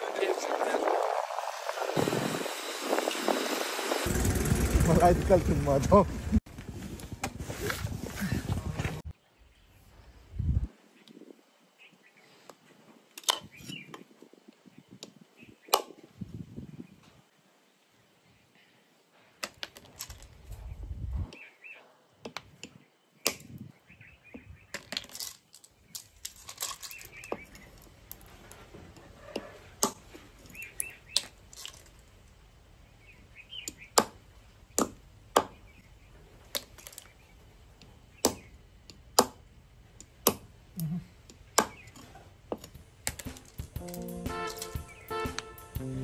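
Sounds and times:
knife chopping shells on wood: 0:33.7 - 0:34.2, 0:34.8 - 0:35.6, 0:38.2 - 0:38.5, 0:39.2 - 0:39.4, 0:40.2 - 0:40.5, 0:41.6 - 0:44.0.

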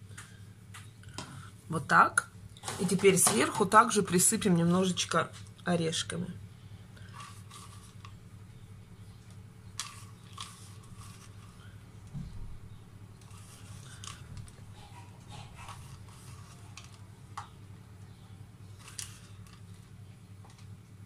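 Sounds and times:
low hum: 0:00.0 - 0:21.0
nuts sprinkling with crunches: 0:07.0 - 0:08.3, 0:09.2 - 0:12.2, 0:13.1 - 0:21.0.

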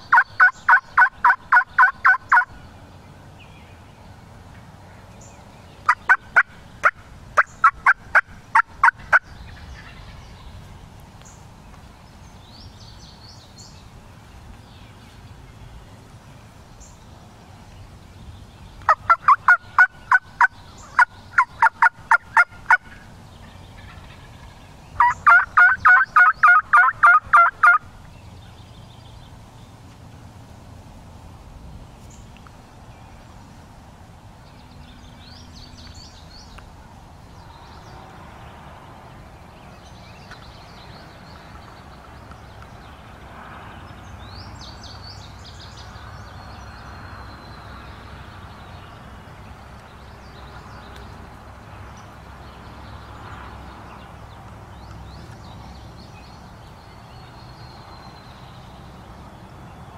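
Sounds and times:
turkey yelping: 0:00.1 - 0:02.5, 0:25.0 - 0:27.8.

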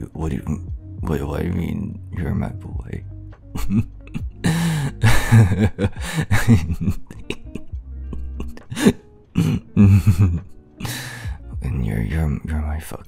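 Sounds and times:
lofi music: 0:00.0 - 0:13.0
man's breathy vocal sounds: 0:03.7 - 0:06.4, 0:08.2 - 0:10.1, 0:10.8 - 0:11.5.

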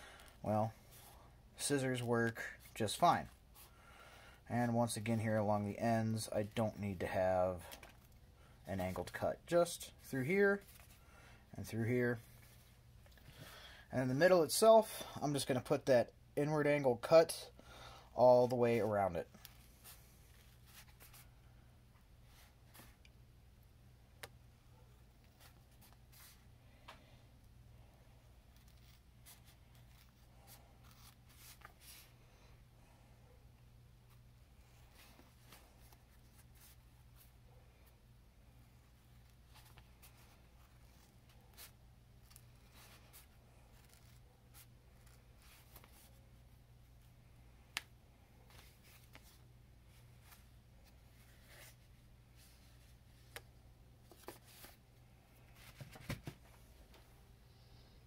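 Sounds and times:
low steady hum: 0:00.0 - 0:15.2.

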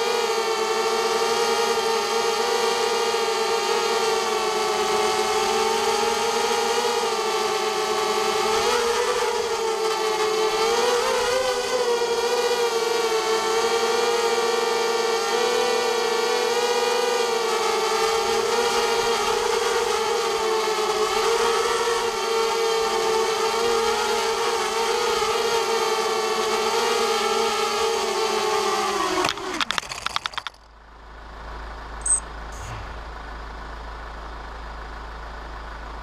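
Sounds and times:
drone motors whining: 0:32.0 - 0:33.2.

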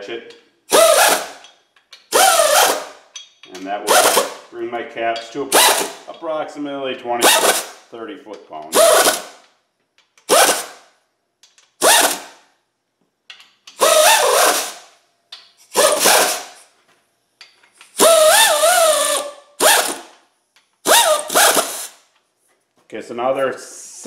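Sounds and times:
air ratchet whirring: 0:00.7 - 0:04.5, 0:05.5 - 0:06.1, 0:07.2 - 0:07.9, 0:08.7 - 0:11.0, 0:11.6 - 0:12.5, 0:13.6 - 0:15.0, 0:15.6 - 0:16.7, 0:17.8 - 0:22.1.

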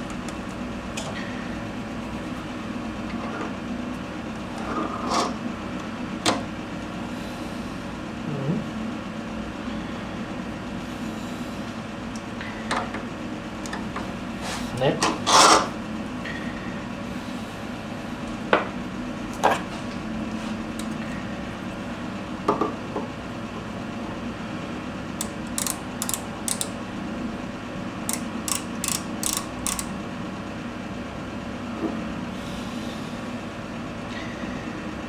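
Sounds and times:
steady low hum: 0:00.0 - 0:35.0
lathe chuck clicking: 0:25.2 - 0:26.8, 0:28.1 - 0:29.9.

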